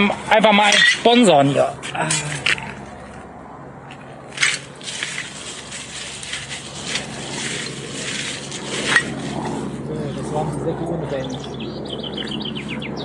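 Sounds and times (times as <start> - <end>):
litter rustling and clinking: 4.3 - 9.6
scrape: 4.4 - 9.8.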